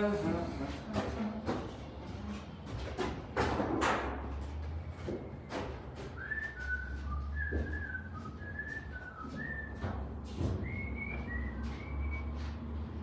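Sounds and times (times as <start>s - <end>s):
person whistling a tune: 6.1s - 12.6s.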